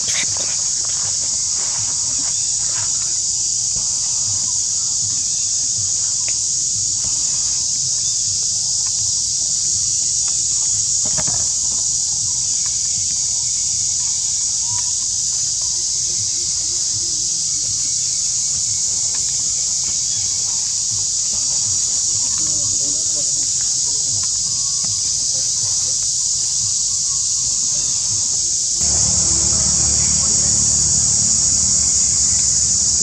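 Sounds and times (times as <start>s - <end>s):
high-pitched insect chorus: 0.0s - 33.0s.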